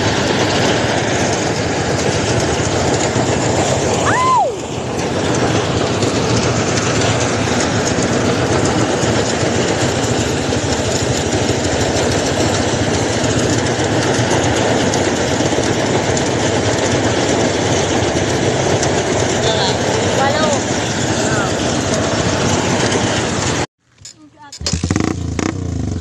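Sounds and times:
engine running: 0.0s - 26.0s
loud mechanical rattling: 0.0s - 26.0s.

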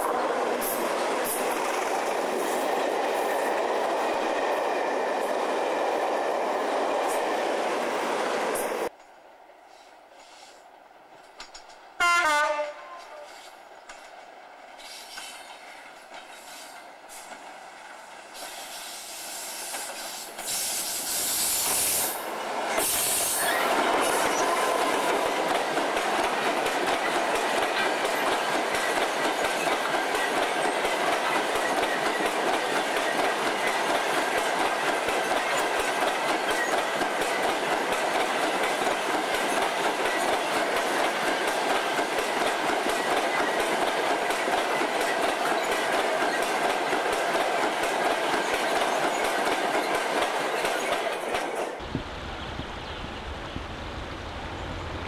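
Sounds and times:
train coaches rushing past: 0.0s - 55.0s
train horn blast: 12.0s - 13.5s.

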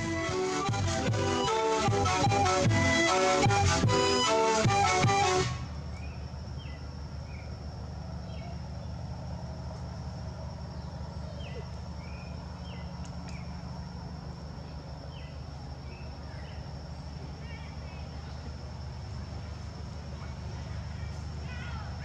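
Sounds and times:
low steady hum: 0.0s - 22.0s
small birds chirping: 5.9s - 9.1s, 10.6s - 13.8s, 14.6s - 18.6s.

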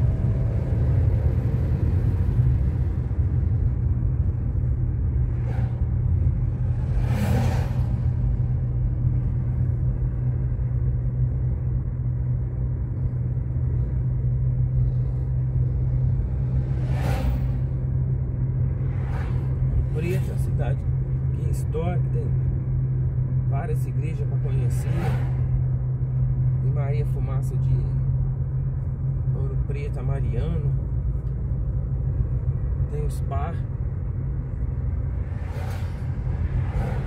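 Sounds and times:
car engine and road noise: 0.0s - 37.0s
brief whooshes: 16.6s - 17.8s, 35.3s - 37.0s.

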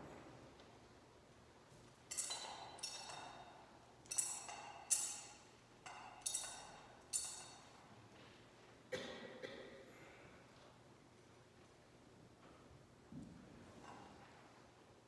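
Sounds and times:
metal censer clinking on chains: 2.1s - 7.9s.

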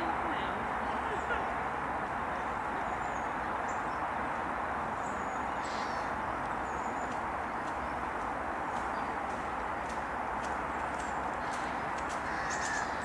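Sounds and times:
outdoor background noise: 0.0s - 13.0s
faint high bird calls: 5.0s - 8.0s, 11.4s - 13.0s.

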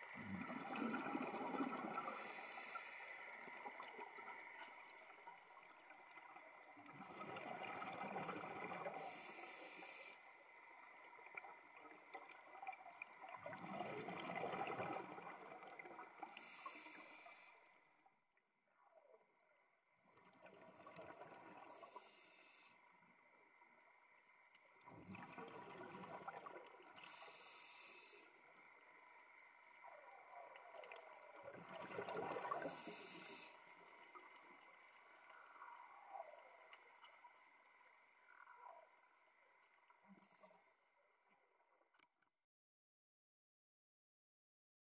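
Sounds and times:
bubbly exhale gurgle underwater: 0.0s - 9.3s, 11.2s - 16.7s, 20.1s - 22.0s, 24.8s - 27.2s, 29.8s - 37.3s
hissing regulator inhale: 1.9s - 3.8s, 8.8s - 10.4s, 16.3s - 17.7s, 21.7s - 22.8s, 27.0s - 28.4s, 32.5s - 33.7s.

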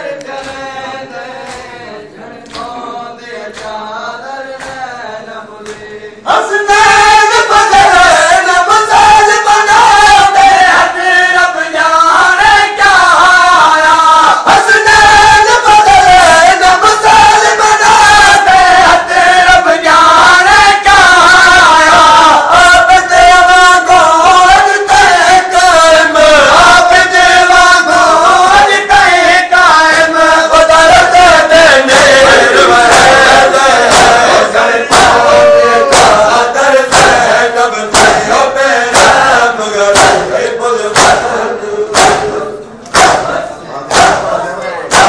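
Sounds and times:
crowd of men chanting: 0.0s - 45.0s
hands striking chests: 33.9s - 36.3s, 36.9s - 37.3s, 37.9s - 39.3s, 39.9s - 41.3s, 41.9s - 44.3s.

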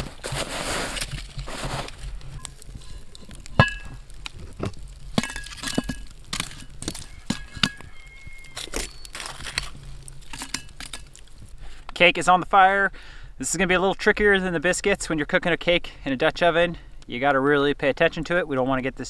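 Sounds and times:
rushing scrape: 0.0s - 11.4s.

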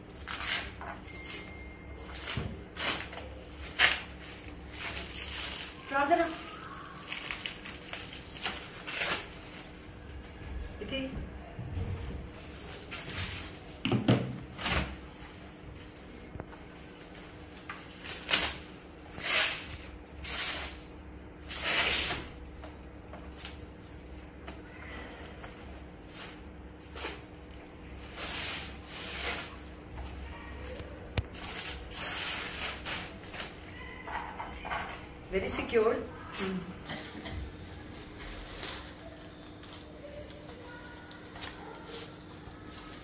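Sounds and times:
newspaper wrapping tearing: 0.1s - 0.8s, 2.0s - 10.6s, 14.4s - 33.8s.

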